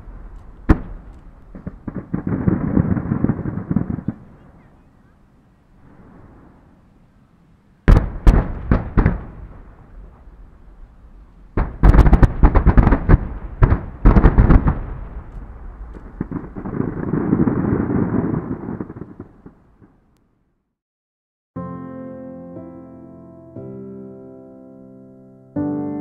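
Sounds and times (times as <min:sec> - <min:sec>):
fireworks banging: 0:00.0 - 0:04.9, 0:07.9 - 0:10.9, 0:11.5 - 0:20.2
rumble with fine crackle: 0:00.0 - 0:20.5.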